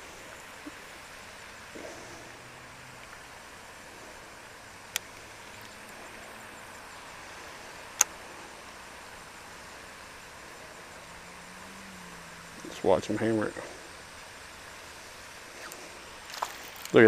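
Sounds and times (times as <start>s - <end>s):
faint steady hiss: 0.0s - 17.0s
sharp clicks: 8.0s - 8.2s.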